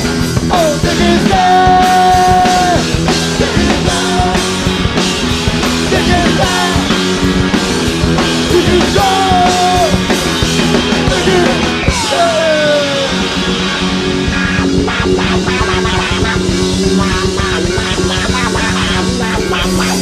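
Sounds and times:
bending lead guitar line: 0.0s - 20.0s
funk rock band playing: 0.0s - 20.0s.

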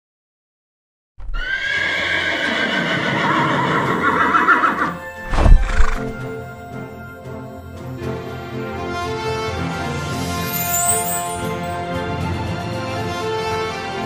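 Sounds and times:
horse whinnying: 1.2s - 6.3s
soft background music: 3.9s - 14.0s
loud low thump: 5.3s - 6.2s.

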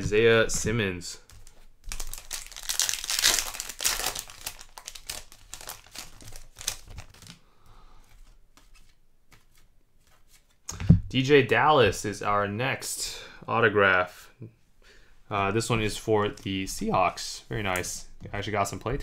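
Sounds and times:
plastic packaging crinkling: 1.3s - 7.4s.

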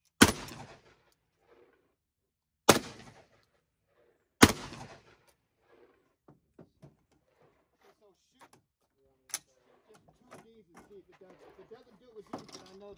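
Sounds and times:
shotgun shots: 0.2s - 1.0s, 2.7s - 3.4s, 4.4s - 5.9s.

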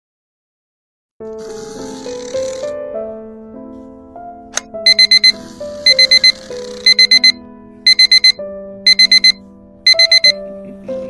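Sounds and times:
background music: 1.2s - 11.0s
alarm clock beeping: 4.9s - 10.4s.

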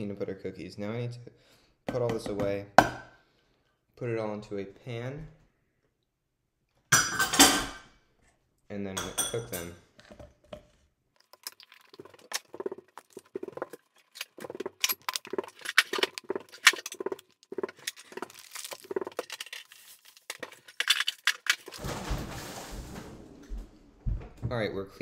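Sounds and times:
jars and utensils clinking: 11.2s - 21.8s.

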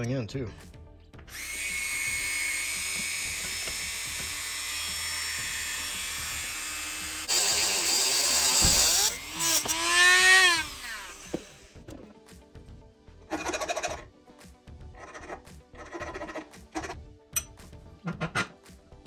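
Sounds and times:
cutoff wheel cutting metal: 1.3s - 11.7s
rotary tool whining: 1.3s - 11.8s.

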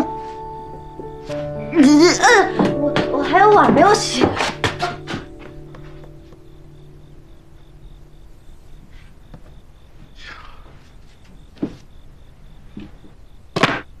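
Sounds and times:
soft rustle: 8.7s - 13.0s.

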